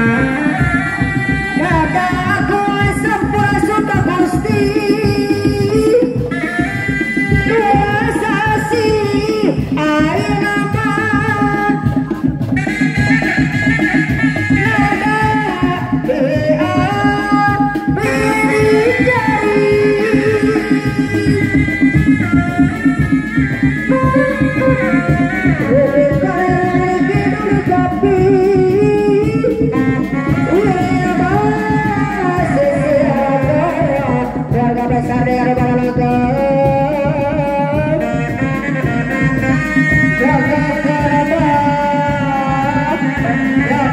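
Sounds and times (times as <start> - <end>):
drums beating fast rhythm: 0.0 - 43.9
wavering high melody: 18.0 - 32.3
sliding wavering melody: 22.0 - 26.6.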